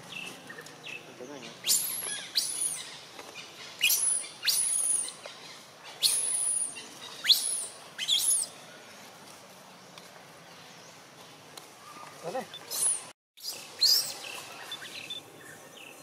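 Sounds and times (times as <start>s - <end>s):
baby monkey high-pitched calls: 1.6s - 3.0s, 3.8s - 5.2s, 6.0s - 8.5s.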